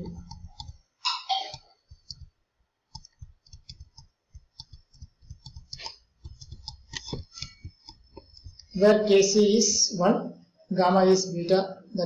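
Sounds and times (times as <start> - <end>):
computer mouse clicking: 0.0 - 0.8, 1.5 - 8.8.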